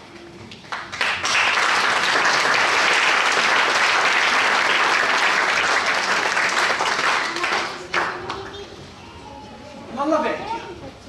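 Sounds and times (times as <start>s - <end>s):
audience applauding: 0.6s - 8.4s.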